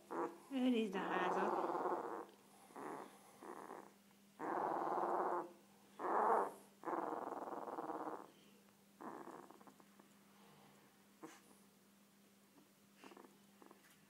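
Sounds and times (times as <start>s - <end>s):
puppy grunting and snuffling: 0.0s - 8.4s, 9.0s - 9.9s, 11.2s - 11.5s, 13.0s - 13.9s.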